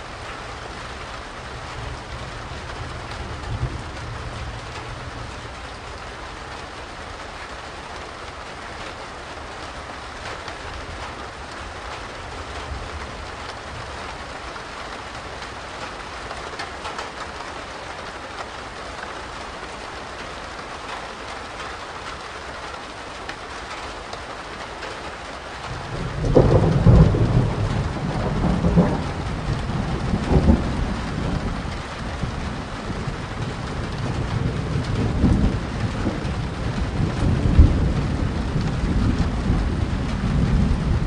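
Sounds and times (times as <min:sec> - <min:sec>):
rain falling steadily: 0:00.0 - 0:41.0
low thunder rumble: 0:01.2 - 0:06.0, 0:25.6 - 0:41.0.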